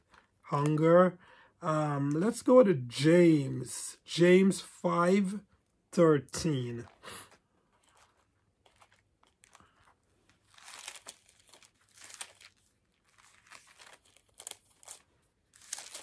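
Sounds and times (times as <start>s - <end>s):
thin pages rustling: 6.7s - 16.0s.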